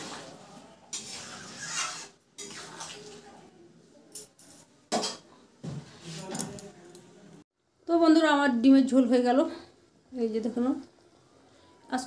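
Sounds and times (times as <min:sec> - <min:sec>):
metal spatula scraping a pan: 0:00.0 - 0:03.2.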